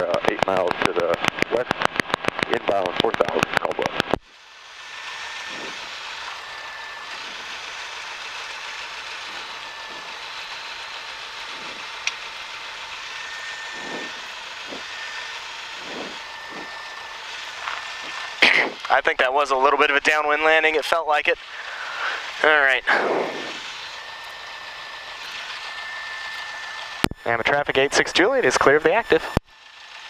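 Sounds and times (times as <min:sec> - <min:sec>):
small plane engine at low power: 0:00.0 - 0:30.0
rush of cabin noise: 0:13.7 - 0:15.0.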